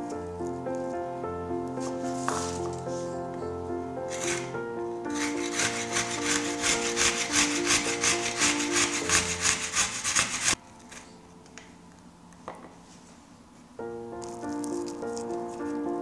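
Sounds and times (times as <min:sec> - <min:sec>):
garlic scraping on a grater: 0:05.2 - 0:10.6.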